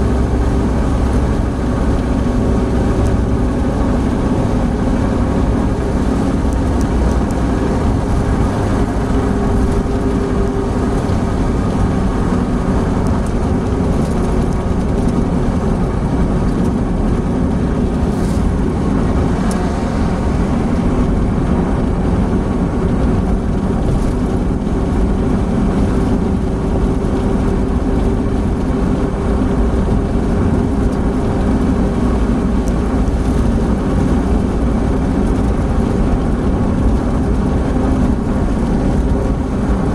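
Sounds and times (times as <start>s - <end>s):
engine drone: 0.0s - 39.9s
wind noise: 0.0s - 39.9s.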